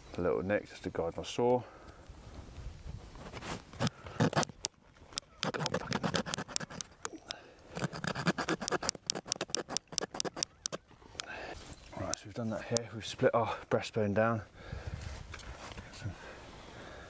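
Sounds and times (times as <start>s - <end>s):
hand saw cutting bone: 3.8s - 4.6s, 5.4s - 7.0s, 7.8s - 10.8s.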